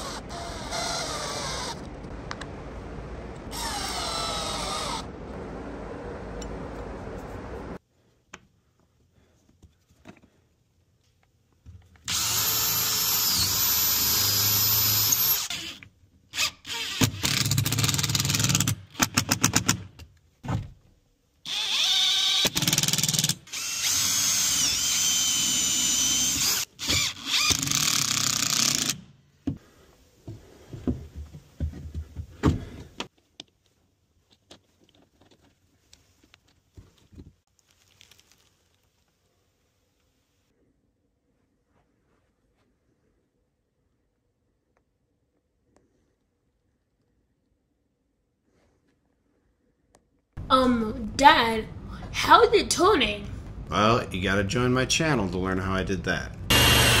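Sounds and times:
cordless drill driving a screw: 0:00.0 - 0:01.8, 0:03.5 - 0:05.1, 0:12.1 - 0:15.8, 0:21.5 - 0:29.0, 0:56.5 - 0:57.0
power drill whining: 0:00.0 - 0:01.9, 0:03.5 - 0:05.1, 0:12.1 - 0:15.8, 0:21.5 - 0:29.0, 0:56.5 - 0:57.0.

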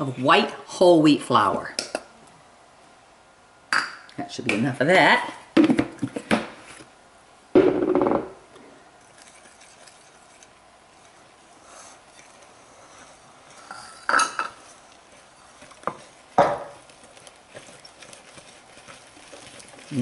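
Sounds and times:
whisk mixing in glass bowl: 0:09.0 - 0:20.0.

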